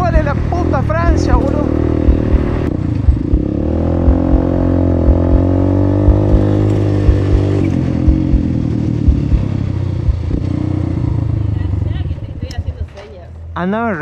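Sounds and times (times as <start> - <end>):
motorcycle engine revving: 0.0 - 12.7
short low thumps: 1.0 - 10.4.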